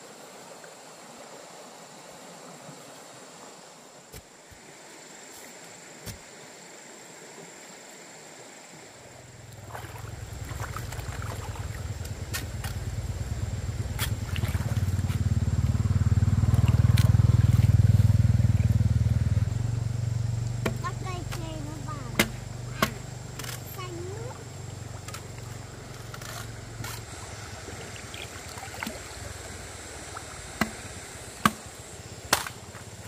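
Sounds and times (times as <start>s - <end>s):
engine running: 9.4s - 33.0s.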